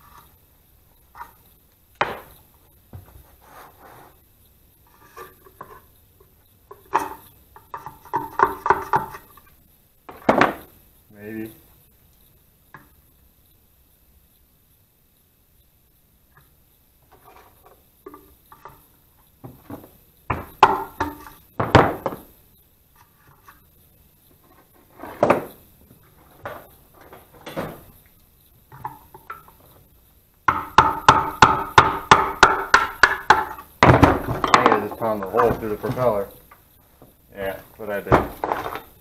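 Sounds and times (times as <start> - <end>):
tools clanking on metal housing: 26.4 - 28.0, 30.5 - 36.6.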